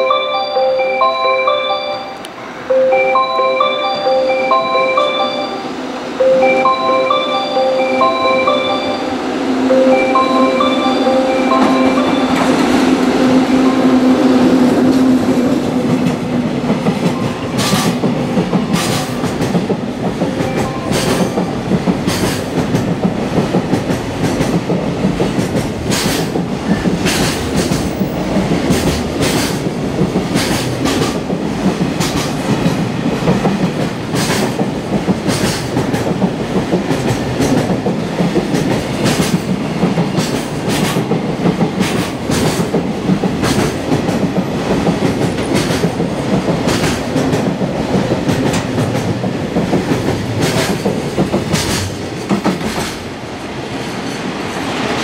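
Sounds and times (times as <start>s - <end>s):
freight train wagons rumbling: 2.6s - 55.0s.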